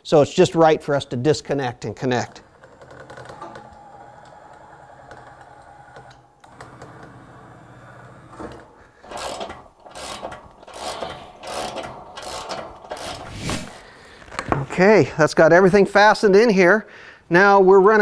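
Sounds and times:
zip ties ratcheting tight: 9.1 - 13.7.

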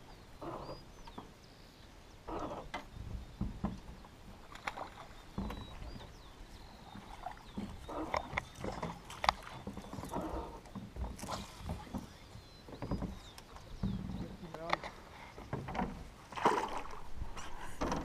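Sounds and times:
water slapping against boat hull: 6.8 - 18.0.

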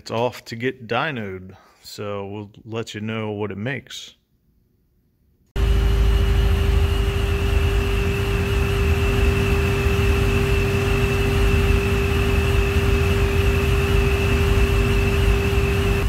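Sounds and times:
supercharger whine: 5.6 - 16.0.

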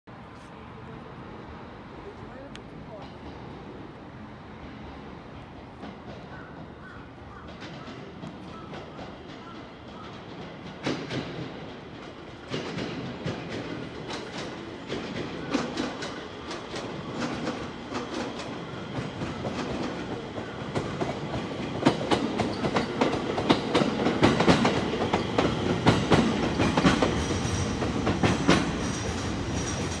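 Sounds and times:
train wheels clacking over rails: 2.9 - 30.0.

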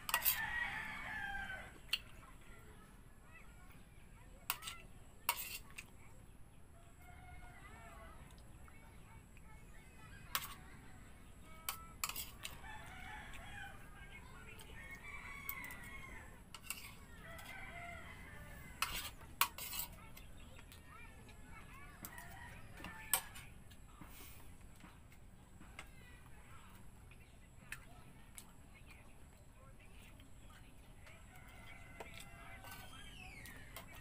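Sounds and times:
metal spoon scraping a plate: 0.0 - 0.5, 4.4 - 5.9, 10.3 - 10.6, 11.6 - 12.6, 16.5 - 17.5, 18.8 - 20.2, 32.6 - 34.0
rooster crowing: 0.1 - 1.8, 12.6 - 13.9, 14.8 - 16.4, 17.2 - 19.1.

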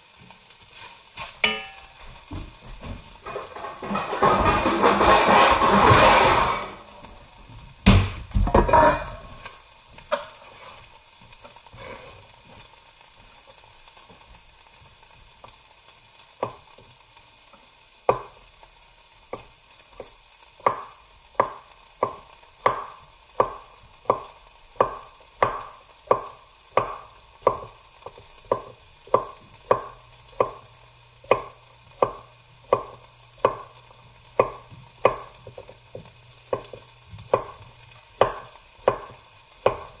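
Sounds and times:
knife chopping on wooden board: 20.6 - 30.6, 31.3 - 33.7, 34.4 - 37.6, 38.2 - 40.0.

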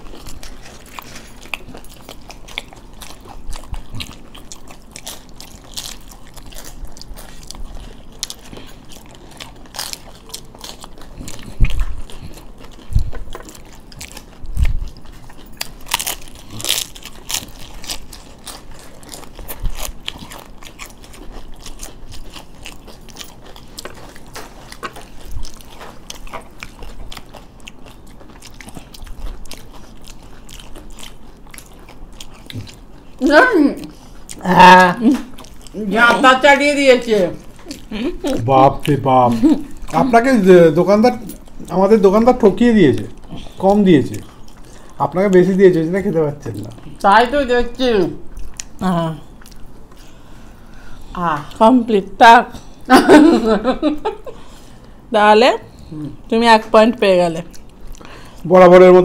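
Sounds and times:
crunching crisp wafers: 0.0 - 33.3.

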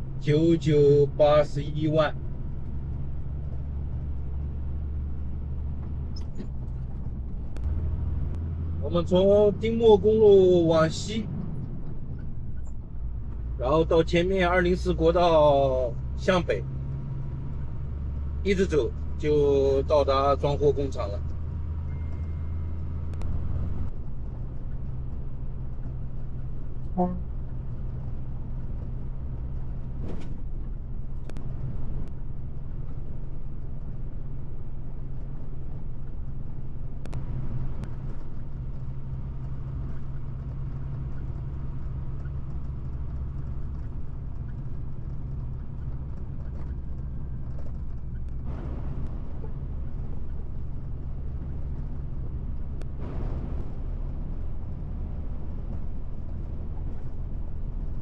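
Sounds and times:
truck engine and road drone: 0.0 - 58.0.

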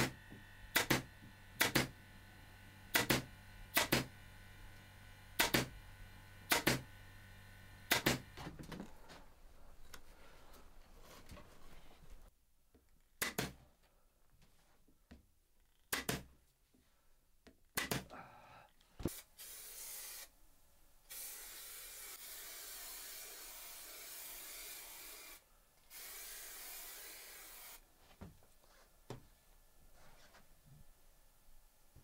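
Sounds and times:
staple gun clicks: 3.0 - 3.2, 5.4 - 5.7, 6.5 - 6.8
steady hiss: 19.0 - 20.4.

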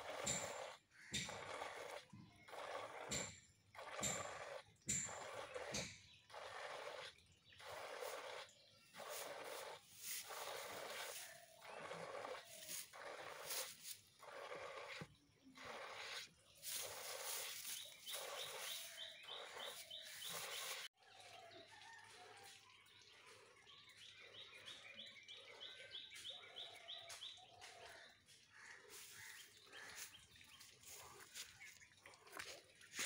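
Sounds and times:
milk squirting into a jug: 0.0 - 20.8
bird chirping: 0.1 - 21.4, 22.9 - 33.0.

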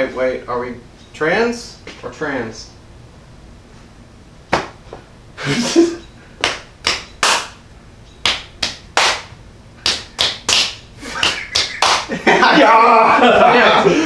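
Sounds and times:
sharp hand slaps: 4.5 - 4.8, 6.4 - 7.6, 8.2 - 12.1.

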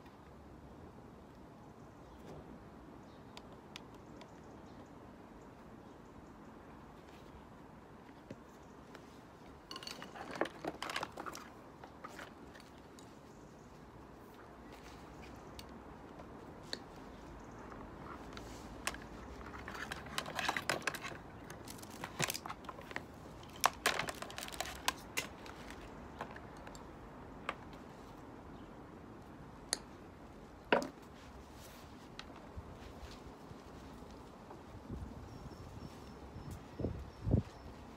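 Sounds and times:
electrical wires crinkling and clicking: 18.0 - 27.0.

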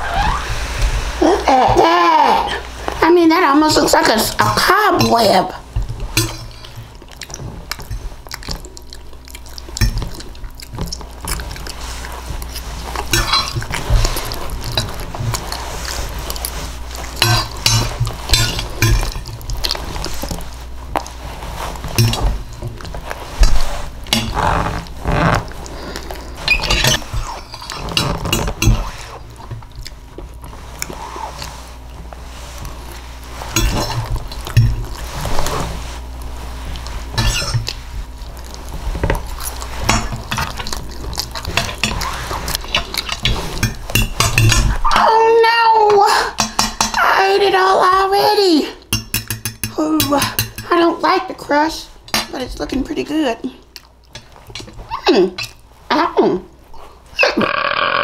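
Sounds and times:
chewing and lip-smacking: 6.0 - 21.2, 28.8 - 31.9, 33.7 - 44.9, 53.6 - 54.8
cutlery clinking against dish: 17.2 - 19.3, 22.0 - 22.3, 42.7 - 44.8, 46.4 - 47.0, 48.9 - 50.7.

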